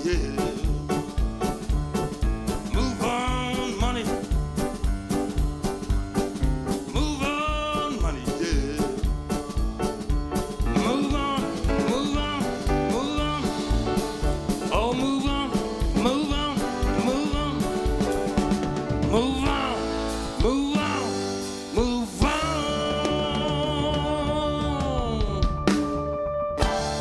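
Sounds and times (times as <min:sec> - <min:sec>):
man singing: 0:00.0 - 0:01.2, 0:02.6 - 0:04.4, 0:06.7 - 0:09.4, 0:10.6 - 0:18.1, 0:18.9 - 0:26.0
drum kit: 0:00.0 - 0:27.0
upright double bass: 0:00.0 - 0:27.0.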